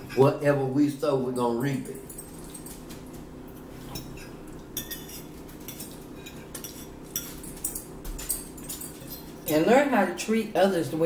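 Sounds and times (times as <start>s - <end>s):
forks clinking on plates: 1.3s - 3.2s, 3.8s - 9.8s.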